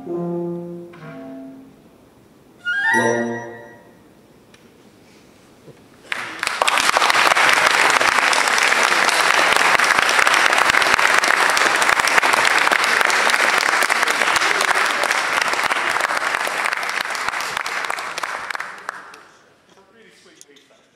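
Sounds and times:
audience applauding: 6.0s - 19.4s.

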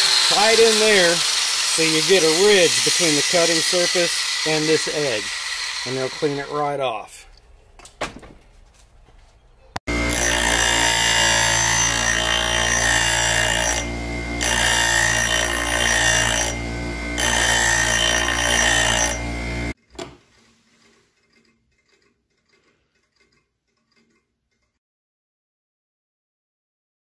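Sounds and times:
bench grinder grinding: 0.0s - 6.8s, 9.9s - 19.8s
motor hum: 9.9s - 19.8s.

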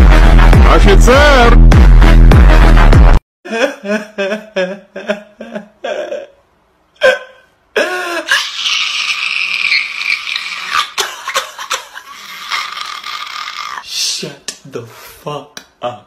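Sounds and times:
person crying out: 3.5s - 6.4s, 7.0s - 13.9s.

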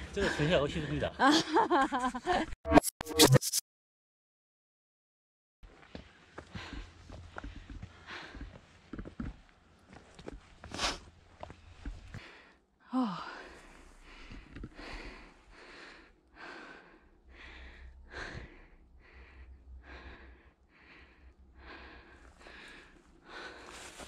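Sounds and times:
heavy rhythmic breathing: 6.0s - 9.3s, 10.6s - 24.0s
person sighing: 12.9s - 13.6s.

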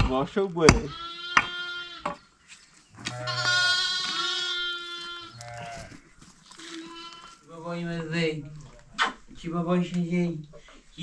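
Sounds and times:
digging bar striking stony ground: 0.0s - 1.5s
young goat bleating: 0.9s - 2.3s, 3.0s - 7.5s.

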